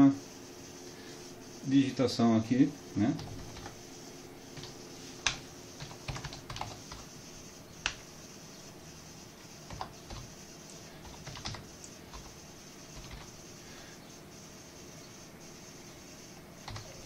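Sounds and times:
keyboard typing clicks: 0:03.2 - 0:03.8, 0:04.5 - 0:07.1, 0:07.8 - 0:08.1, 0:09.7 - 0:13.3, 0:16.6 - 0:17.0.

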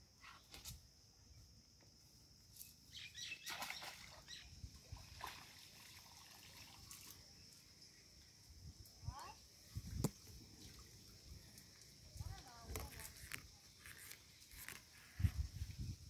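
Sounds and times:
light crackles and rustles: 0:09.8 - 0:16.0.

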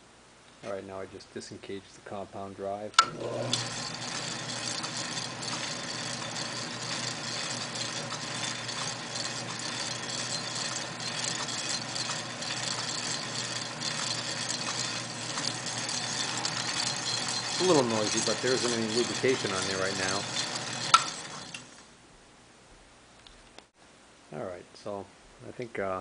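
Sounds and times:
lathe gears rattling: 0:03.0 - 0:21.8
low motor hum: 0:03.0 - 0:21.8.

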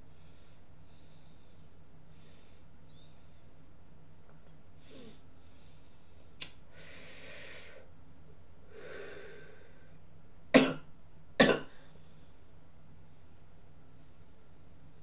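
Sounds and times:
man breathing: 0:00.1 - 0:03.4, 0:04.8 - 0:07.9, 0:08.7 - 0:10.0
sharp click: 0:06.4 - 0:06.6.

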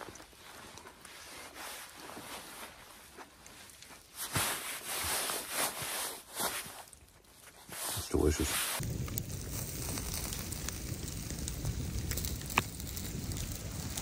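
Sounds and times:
rustling: 0:00.0 - 0:08.8.

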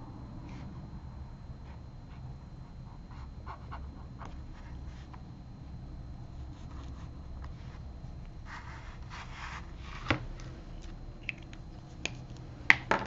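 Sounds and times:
pen scratching on paper: 0:02.9 - 0:05.1.

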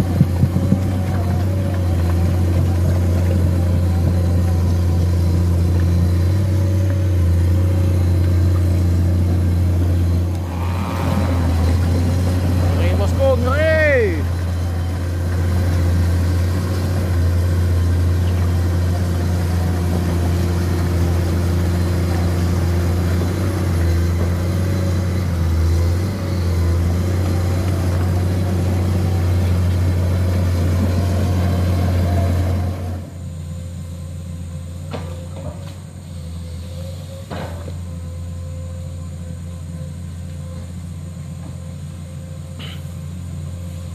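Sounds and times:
excavator diesel engine droning: 0:00.0 - 0:43.9.

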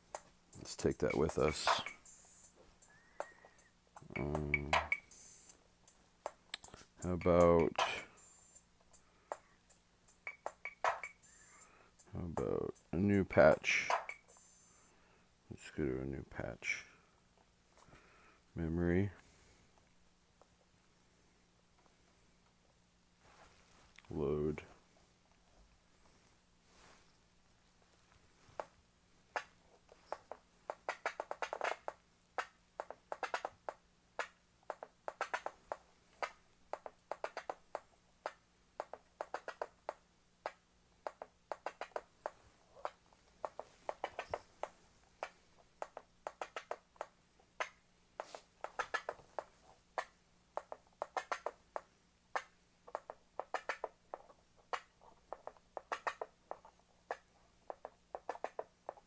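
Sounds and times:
drum machine playing a pattern: 0:00.1 - 0:06.0, 0:06.6 - 0:14.6.

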